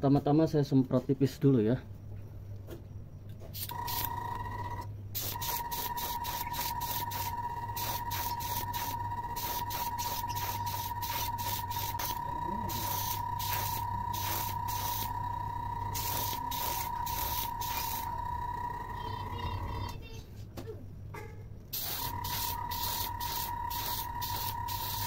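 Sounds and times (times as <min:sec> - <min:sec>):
steady high whine: 0:03.6 - 0:20.0, 0:21.8 - 0:25.0
airbrush hissing in bursts: 0:05.2 - 0:18.2, 0:21.7 - 0:25.0.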